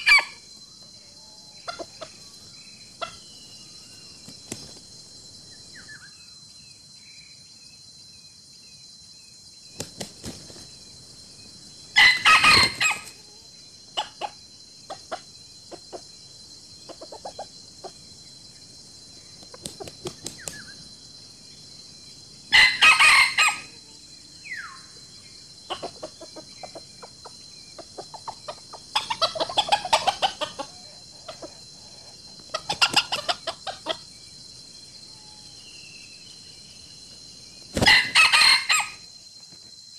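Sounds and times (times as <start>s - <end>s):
high insect drone: 0.0s - 39.9s
chicken clucks: 1.6s - 2.2s, 14.0s - 16.1s, 16.9s - 18.0s, 25.6s - 31.7s, 32.4s - 34.0s
chickens calling: 12.0s - 16.1s, 25.6s - 31.7s, 32.3s - 34.1s, 37.7s - 39.0s.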